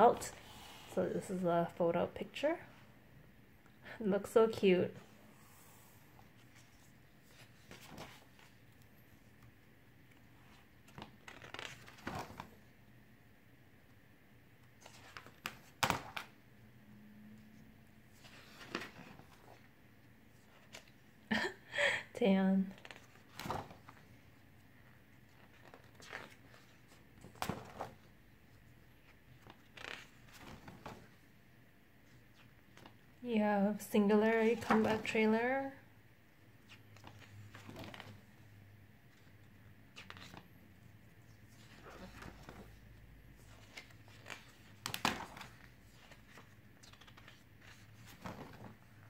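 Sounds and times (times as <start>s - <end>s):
pages turning: 6.4s - 9.5s, 10.1s - 12.7s, 14.7s - 16.4s, 18.1s - 19.7s, 20.4s - 21.0s, 22.7s - 24.3s, 25.1s - 28.1s, 28.9s - 31.2s, 32.0s - 33.0s, 34.4s - 35.2s, 36.6s - 38.2s, 39.1s - 40.5s, 41.4s - 42.8s, 43.4s - 49.0s
page flapping: 6.5s - 8.6s, 10.4s - 12.6s, 14.8s - 16.4s, 18.2s - 19.6s, 22.8s - 24.1s, 25.3s - 28.1s, 29.0s - 31.2s, 36.7s - 38.2s, 39.2s - 40.5s, 41.6s - 42.8s, 43.4s - 49.0s.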